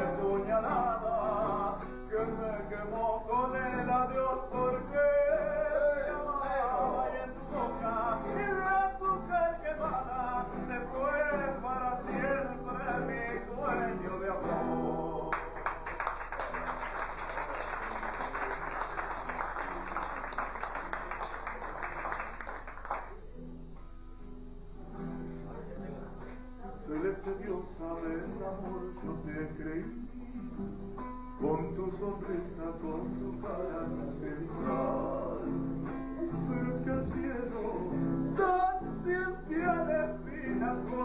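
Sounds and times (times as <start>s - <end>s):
man singing folk song: 0.0s - 15.9s, 24.9s - 41.0s
acoustic guitar: 0.0s - 41.0s
applause: 15.3s - 23.4s.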